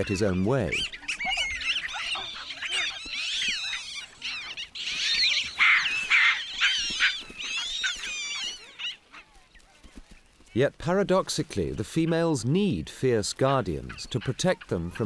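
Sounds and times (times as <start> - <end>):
monkeys screaming and squealing: 0.0 - 9.9.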